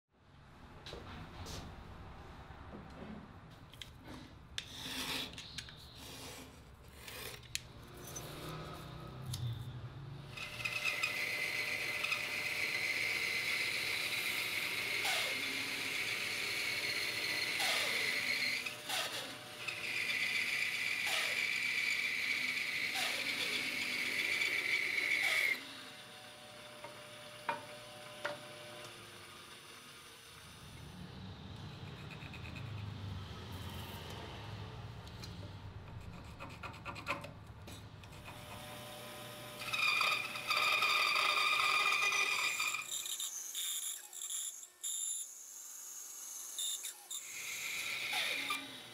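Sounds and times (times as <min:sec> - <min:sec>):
power tool whining on wood: 0:10.3 - 0:31.0, 0:38.1 - 0:48.9.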